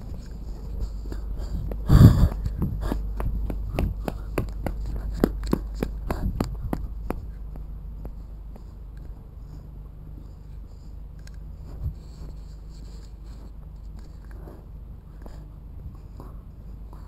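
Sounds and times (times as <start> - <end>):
wind rumbling on microphone: 0.0 - 8.2, 11.4 - 12.4
footsteps on steps: 1.6 - 8.7.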